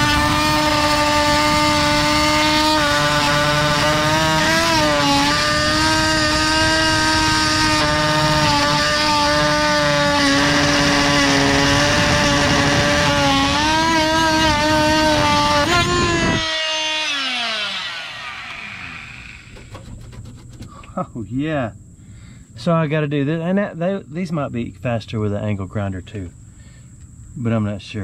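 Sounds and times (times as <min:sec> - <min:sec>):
oscillating multi-tool cutting steel: 0:00.0 - 0:20.6.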